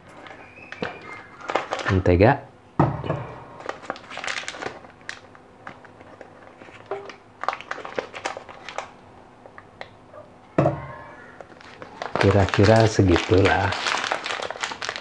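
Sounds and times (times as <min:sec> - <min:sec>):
butter wrapper crinkling: 0:00.2 - 0:02.0, 0:03.6 - 0:09.7, 0:11.4 - 0:15.0.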